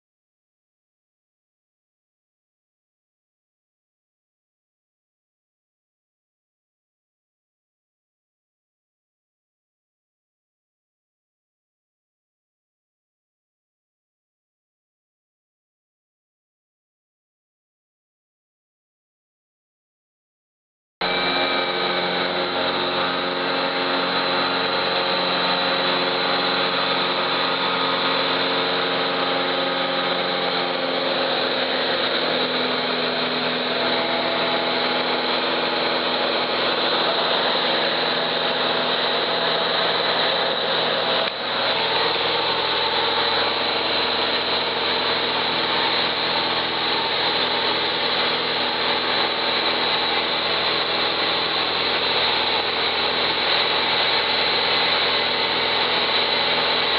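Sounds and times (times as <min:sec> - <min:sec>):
propeller plane engine in cabin: 0:21.0 - 0:56.9.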